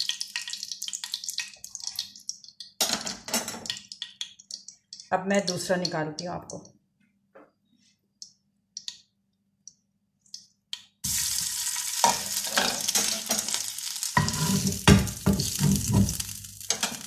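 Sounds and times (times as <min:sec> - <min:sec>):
oil sizzling in a frying pan: 0:00.0 - 0:05.7, 0:11.0 - 0:17.0.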